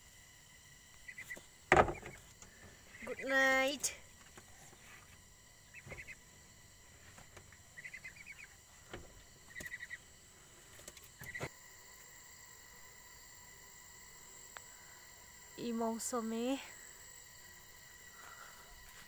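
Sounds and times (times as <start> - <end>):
crickets and insects droning: 0.0 - 19.0
faint knocks: 1.7 - 2.3
ducks trilling chatter: 4.6 - 6.3, 7.7 - 8.6, 9.4 - 10.1.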